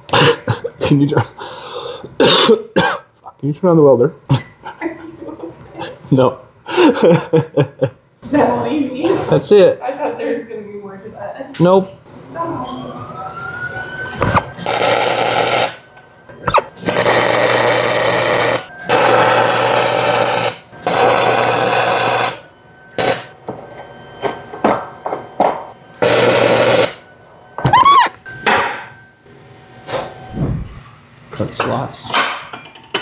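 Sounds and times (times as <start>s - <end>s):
arc welder crackling and sizzling: 14.2s - 15.8s, 16.6s - 22.4s, 23.0s - 23.4s, 26.0s - 27.1s.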